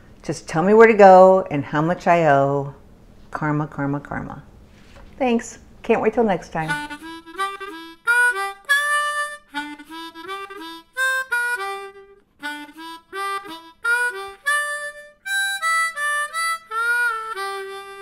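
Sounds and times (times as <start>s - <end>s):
lively theme music: 6.7s - 18.0s.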